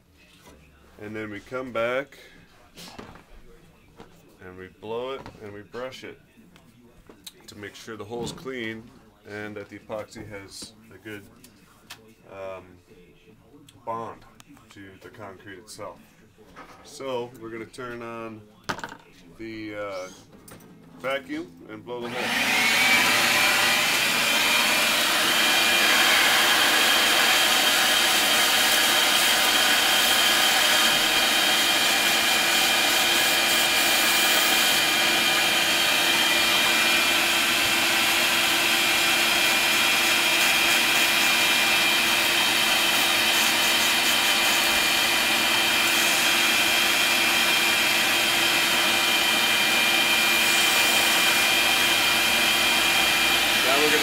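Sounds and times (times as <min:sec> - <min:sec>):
shop vacuum whining: 0:21.9 - 0:54.0.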